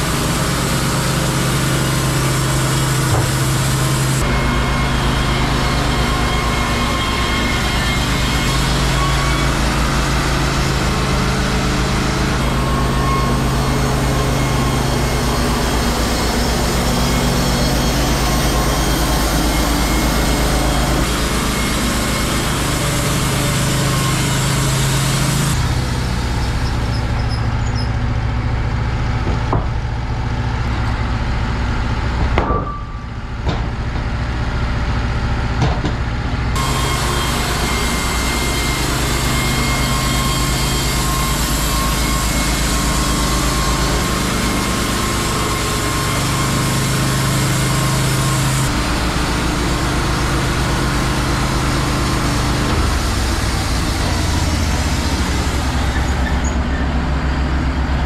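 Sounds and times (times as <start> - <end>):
sawmill engine running: 0.0 - 58.0
sharp knocks: 29.2 - 29.8, 32.2 - 33.8.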